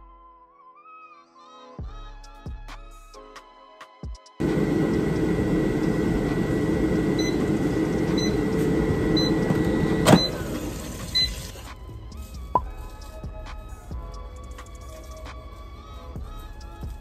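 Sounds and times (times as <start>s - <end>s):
air fryer beeps: 4.4s - 11.7s
air fryer fan running: 4.4s - 11.7s.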